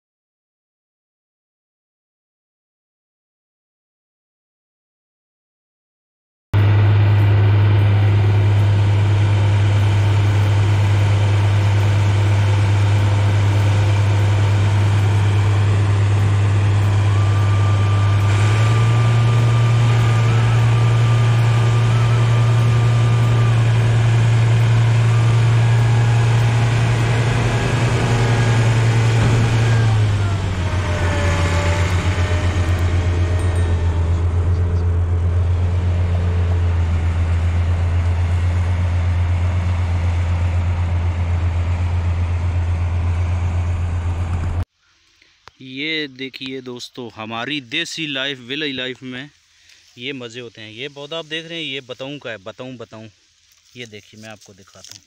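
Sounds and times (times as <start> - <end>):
combine harvester droning: 6.6 - 44.7.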